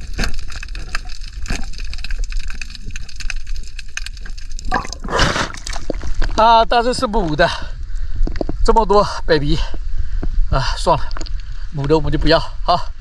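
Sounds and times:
underwater crackle of clicks: 0:00.0 - 0:06.4
water splashing: 0:00.0 - 0:06.4
low rumble of water: 0:00.0 - 0:08.8.

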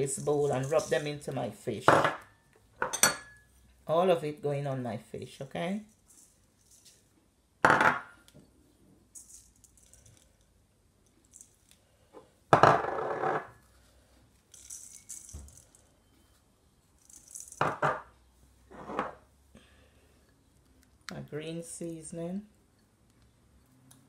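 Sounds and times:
glass bowls clinking on steel bowl: 0:02.8 - 0:03.5.

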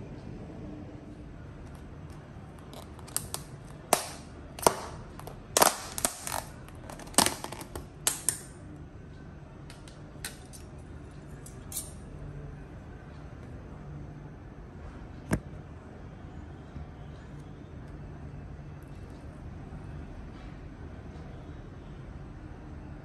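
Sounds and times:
low steady hum: 0:00.0 - 0:23.0
plastic lid snapping and crackling: 0:02.6 - 0:08.5.

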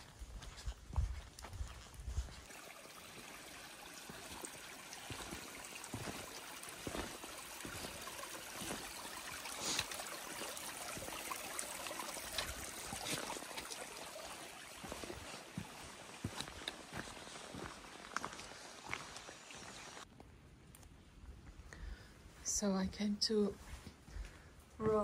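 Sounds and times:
footsteps on wet stone: 0:00.0 - 0:02.5, 0:05.1 - 0:09.0, 0:14.8 - 0:19.7, 0:24.1 - 0:25.0
stream trickling over rocks: 0:00.0 - 0:20.1.

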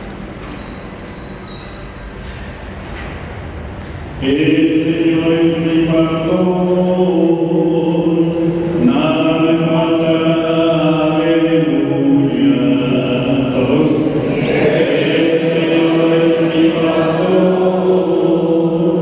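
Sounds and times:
church chant singing: 0:04.2 - 0:19.0.

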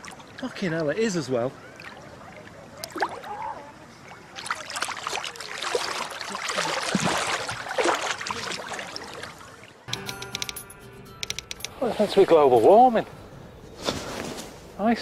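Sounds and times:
water splashing and sloshing: 0:00.0 - 0:09.9.

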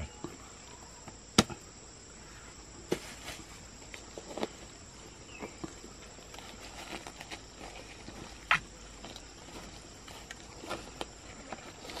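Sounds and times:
high-pitched insect drone: 0:00.0 - 0:02.8.

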